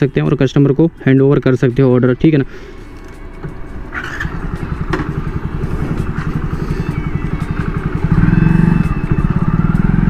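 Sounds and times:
motorcycle engine running: 3.0s - 10.0s.

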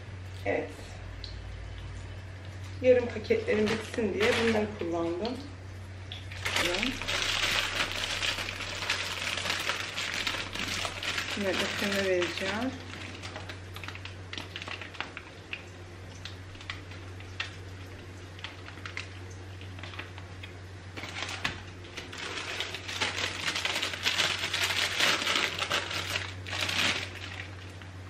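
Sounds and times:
plastic and foil tray crinkling: 3.5s - 4.9s, 6.4s - 15.5s, 18.3s - 20.3s, 21.0s - 27.9s.

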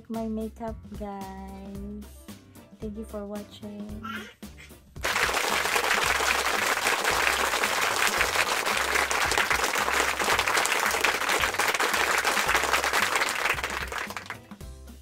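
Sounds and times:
crowd applauding: 5.0s - 14.6s.

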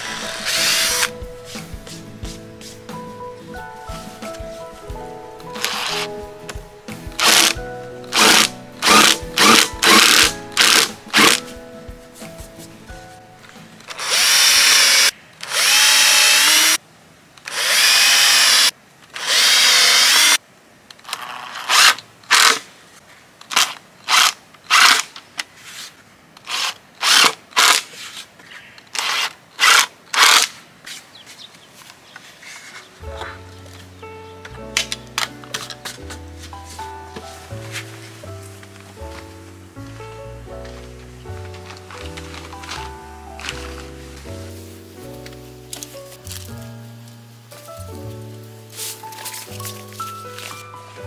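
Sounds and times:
cordless drill driving screws: 0.0s - 1.1s, 5.6s - 6.1s, 7.2s - 11.4s, 13.9s - 16.8s, 17.5s - 20.4s, 26.5s - 27.8s.

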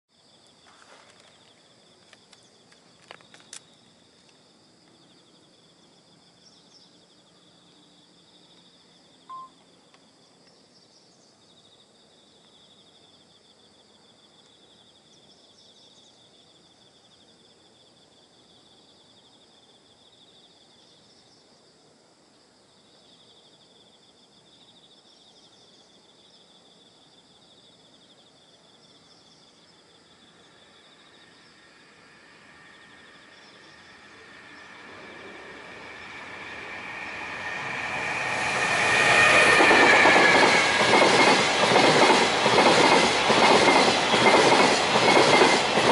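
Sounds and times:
insects chirring: 0.2s - 45.9s
brief beep: 9.3s - 9.6s.

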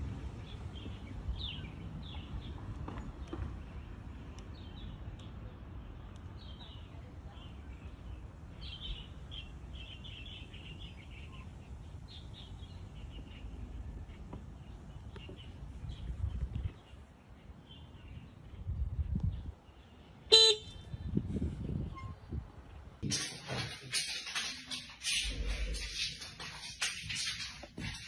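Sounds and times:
low outdoor rumble: 0.0s - 28.0s
birds chirping: 21.9s - 28.0s.

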